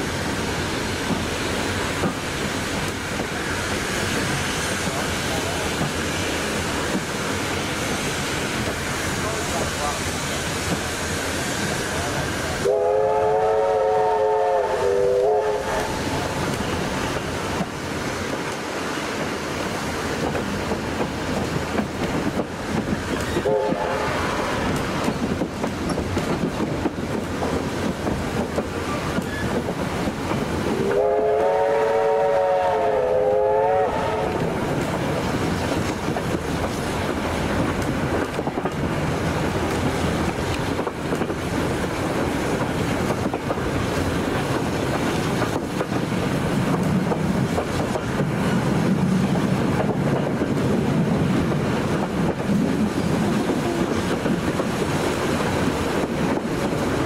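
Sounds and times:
train running on rails: 0.0 - 57.0
steam locomotive whistle: 12.6 - 16.2, 23.3 - 24.7, 30.7 - 34.6.

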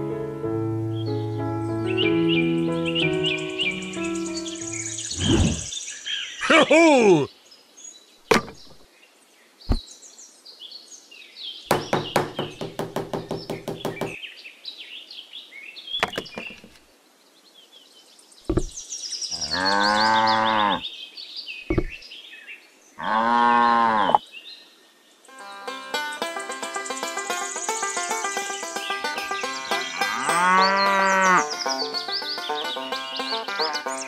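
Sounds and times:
bird chirps: 1.8 - 7.3, 25.4 - 34.0
sharp knocks: 8.3 - 8.8, 11.7 - 14.2, 16.0 - 16.8, 18.5 - 18.8, 21.7 - 22.0
cow mooing: 19.4 - 20.8, 23.0 - 24.2, 29.9 - 31.5.

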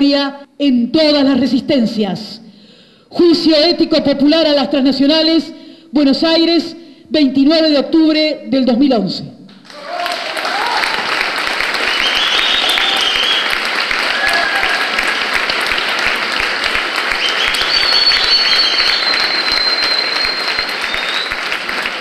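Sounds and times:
audience applauding: 9.6 - 22.0.

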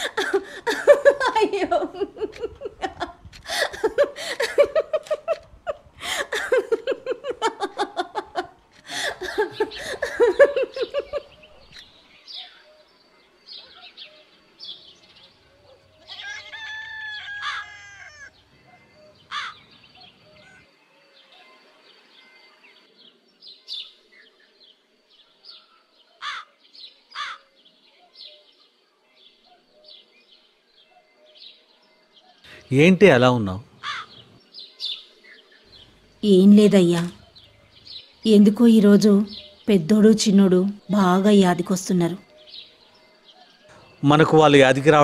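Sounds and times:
small birds chirping: 0.0 - 45.0
rooster crowing: 16.0 - 18.4.

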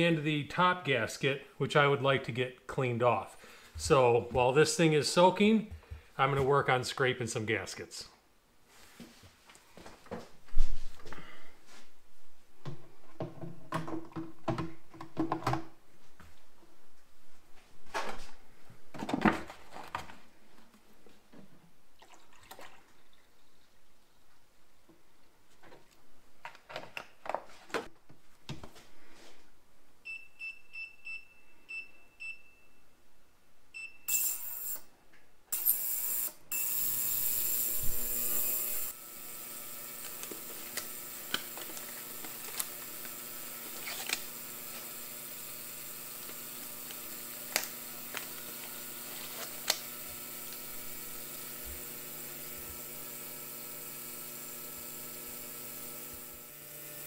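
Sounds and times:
liquid pouring and dripping: 21.9 - 24.1
ultrasonic cleaner humming: 35.6 - 57.0.

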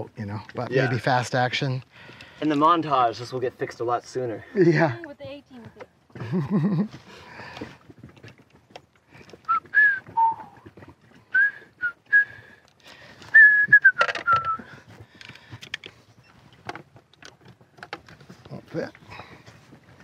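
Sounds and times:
person whistling a tune: 9.5 - 10.6, 11.3 - 12.4, 13.3 - 14.7.

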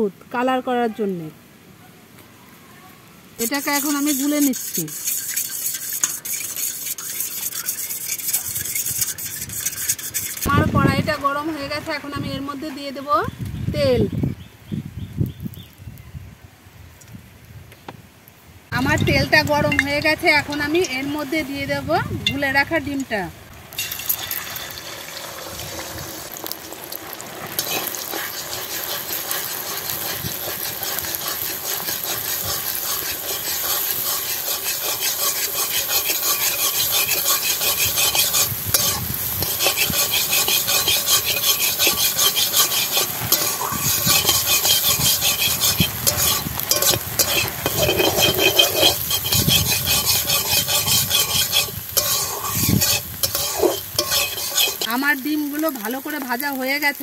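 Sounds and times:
metal spatula scraping pan: 3.4 - 10.6, 18.8 - 21.2, 23.8 - 55.2
eggs sizzling in hot oil: 3.4 - 13.3, 18.7 - 57.0.

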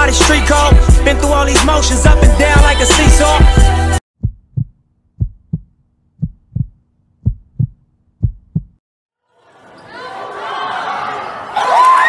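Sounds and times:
heartbeat thumps: 2.1 - 8.8
gym crowd noise: 9.3 - 12.0.

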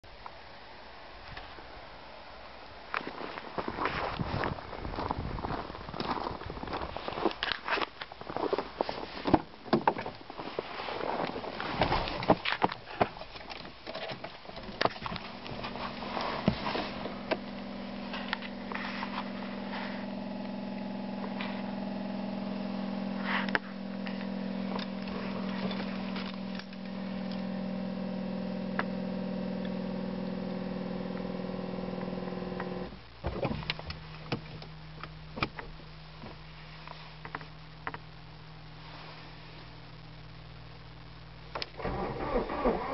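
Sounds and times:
faint low hum: 0.1 - 42.9
small electric motor humming: 15.1 - 32.9.

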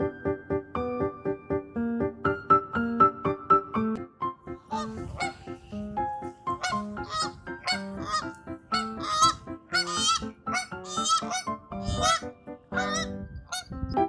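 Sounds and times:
background music: 0.0 - 14.0
geese honking: 4.7 - 5.9, 6.5 - 13.7.

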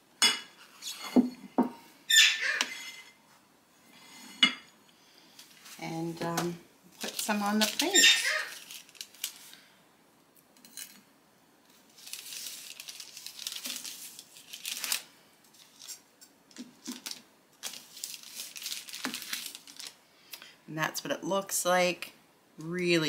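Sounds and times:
parchment rustling and scraping: 5.4 - 9.7, 11.6 - 20.0.

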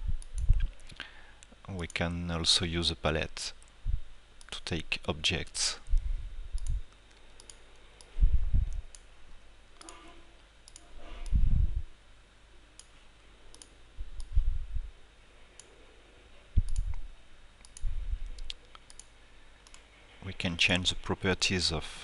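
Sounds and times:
computer mouse clicking: 6.6 - 8.1, 10.6 - 11.4, 13.5 - 14.3, 16.6 - 17.0, 17.6 - 19.8
dull low thumps: 8.2 - 8.8, 11.3 - 11.9, 14.0 - 15.0.

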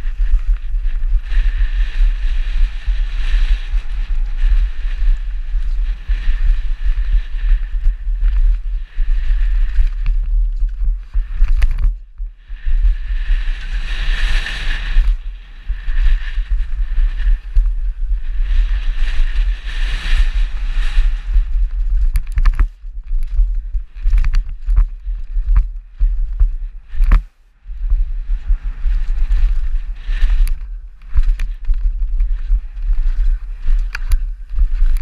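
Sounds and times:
tyre noise on dirt: 0.0 - 35.0
wind rumble on microphone: 0.0 - 35.0
bike clattering and rattling: 21.4 - 27.3, 29.0 - 35.0.

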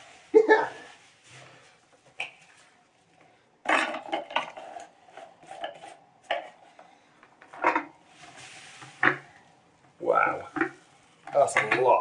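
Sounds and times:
hiss of pouring beads: 8.1 - 9.0.

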